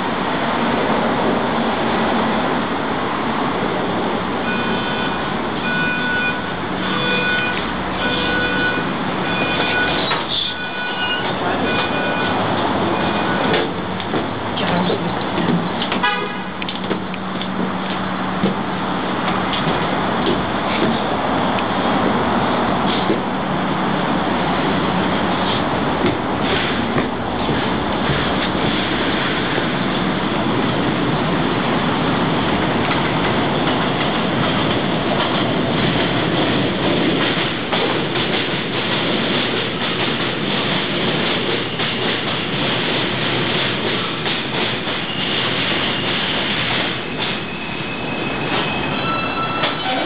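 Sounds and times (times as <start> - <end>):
subway train rumbling on rails: 0.0 - 50.0
train brakes squealing: 4.4 - 13.6, 44.8 - 50.0.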